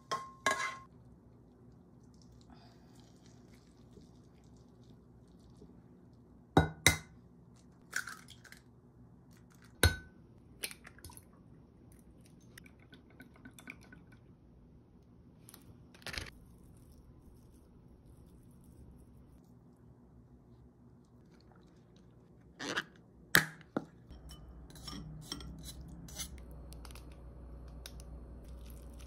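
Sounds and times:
glass bowls clinking on worktop: 0.0s - 0.9s.

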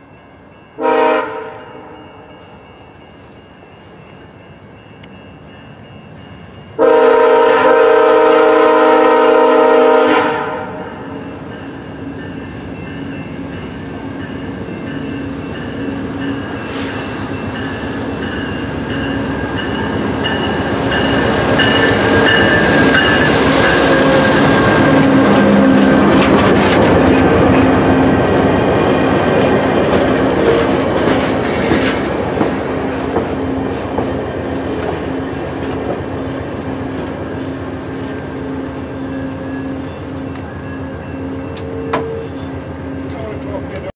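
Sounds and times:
train passing with wheel clatter: 0.0s - 43.9s
locomotive horn blast: 0.8s - 2.2s, 6.8s - 11.0s.

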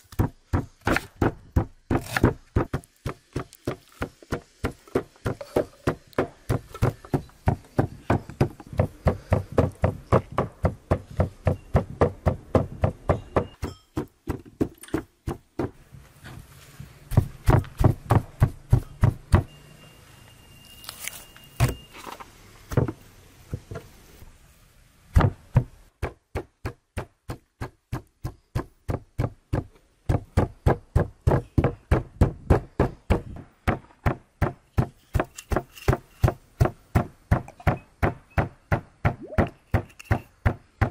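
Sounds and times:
cleaver chopping on wooden board: 0.1s - 15.8s.

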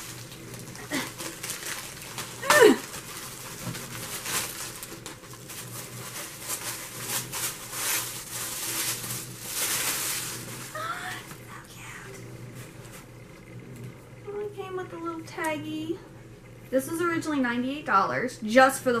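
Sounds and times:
plastic bag and tissue paper crinkling: 0.0s - 11.9s.

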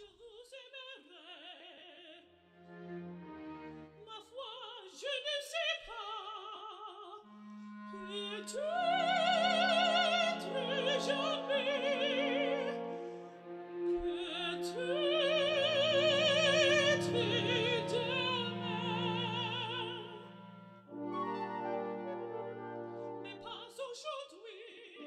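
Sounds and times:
orchestral accompaniment: 2.6s - 3.9s, 7.3s - 23.6s
operatic singing: 7.3s - 25.0s.

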